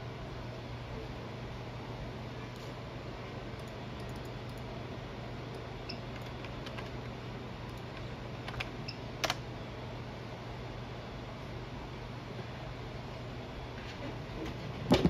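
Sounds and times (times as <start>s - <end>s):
steady low hum: 0.0s - 15.0s
computer keyboard clicks: 6.1s - 7.0s, 7.7s - 9.4s.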